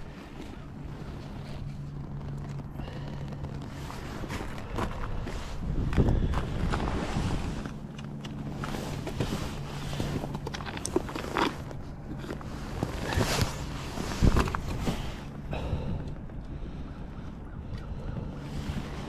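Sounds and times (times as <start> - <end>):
fishing gear clicks and knocks: 0.1 - 6.9, 7.6 - 16.9
wind on microphone: 4.2 - 10.2.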